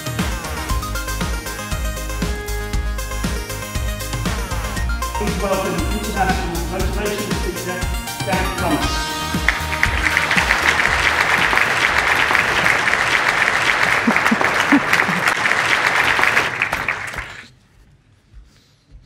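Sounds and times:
large audience applauding: 5.2s - 17.5s.

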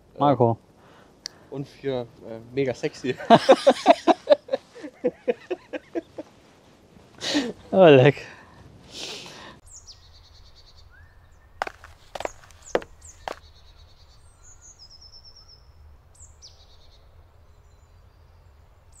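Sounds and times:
small birds chirping: 0.2s - 7.8s, 9.0s - 19.0s.

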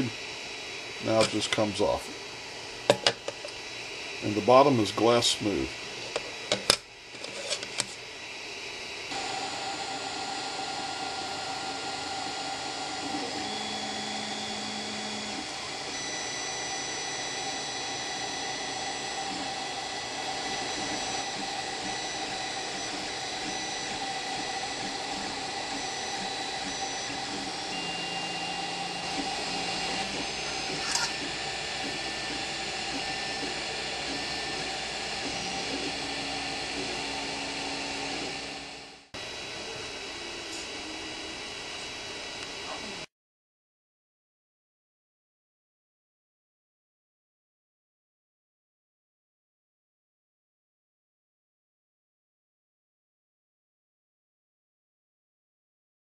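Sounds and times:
fans hissing: 0.0s - 43.1s
stepper motors whining: 0.0s - 43.1s.

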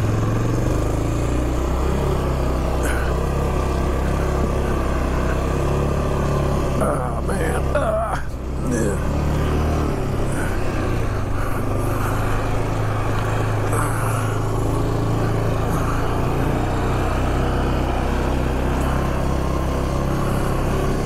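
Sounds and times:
atv engine running under load: 0.0s - 21.0s.

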